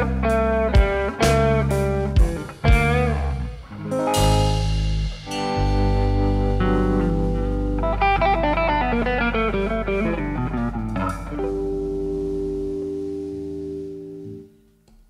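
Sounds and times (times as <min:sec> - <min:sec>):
held bass note: 0:01.6 - 0:14.5
cymbal crash: 0:02.2 - 0:07.9.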